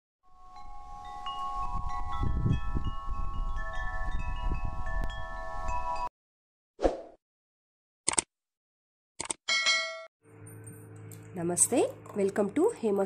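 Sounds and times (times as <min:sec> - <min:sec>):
wind chimes ringing: 0:00.4 - 0:06.1
low rumble of wind: 0:01.3 - 0:05.4.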